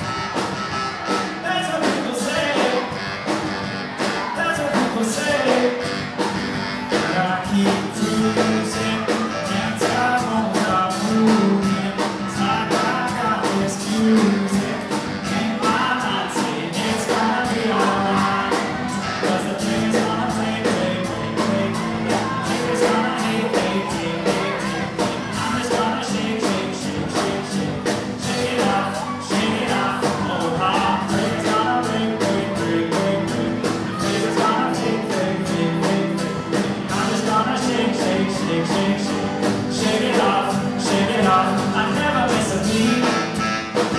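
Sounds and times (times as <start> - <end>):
live rock band playing: 0.0 - 43.9
steady drum beat: 0.0 - 43.9.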